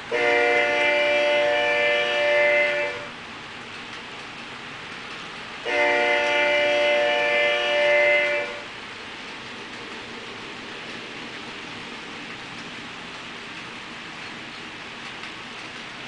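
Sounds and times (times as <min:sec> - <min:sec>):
train rolling hiss: 0:00.0 - 0:16.0
locomotive air horn blast: 0:00.1 - 0:03.2, 0:05.6 - 0:08.7.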